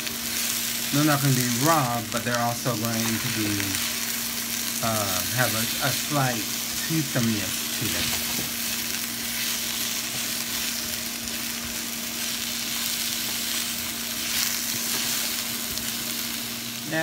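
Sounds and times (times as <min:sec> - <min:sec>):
vegetables sizzling in oil: 0:00.0 - 0:17.0
spatula stirring in pan: 0:07.6 - 0:16.2.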